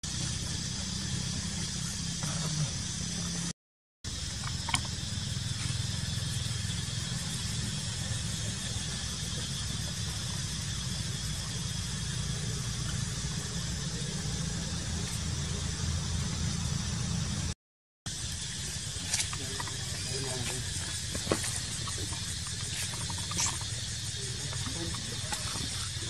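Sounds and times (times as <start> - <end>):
high hiss: 18.1 - 26.0.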